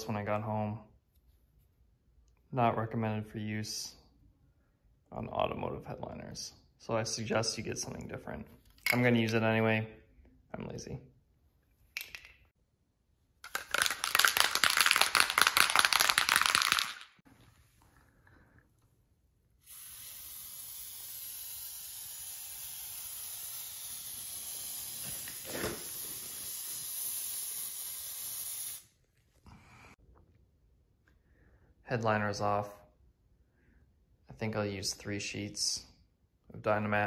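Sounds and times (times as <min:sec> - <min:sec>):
spray can hissing: 0:19.6 - 0:28.9.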